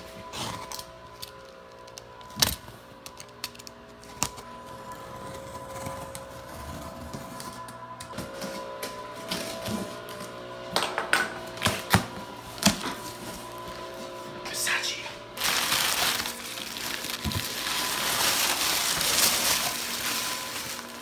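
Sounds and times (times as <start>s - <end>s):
quiet background music: 0.0s - 21.0s
cardboard clicks and crackles: 15.4s - 21.0s.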